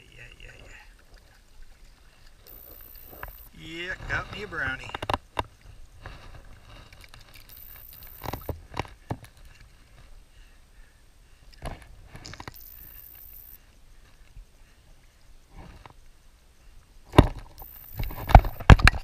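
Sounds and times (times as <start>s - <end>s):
low rustling: 0.5s - 10.3s.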